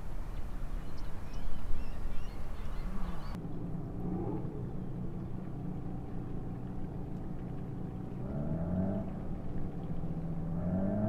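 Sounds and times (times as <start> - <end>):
engine humming and revving: 2.7 - 11.0.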